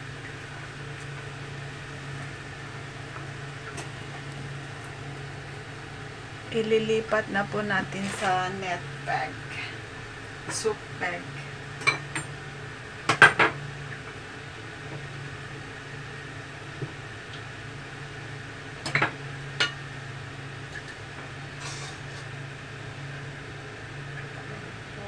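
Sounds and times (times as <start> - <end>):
low kitchen hum: 0.0 - 25.0
metal spatula scraping a wok: 21.6 - 22.2.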